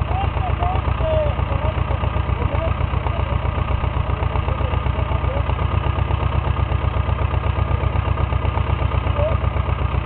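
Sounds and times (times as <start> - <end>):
small tractor engine running: 0.0 - 10.0.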